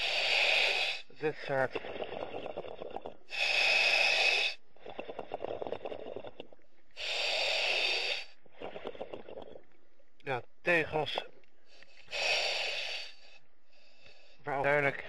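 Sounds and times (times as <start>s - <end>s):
diver inhaling sharp hiss: 0.0s - 1.3s, 3.3s - 4.6s, 7.0s - 8.4s, 11.7s - 14.4s
crackling exhalation: 0.0s - 9.7s, 11.2s - 14.4s.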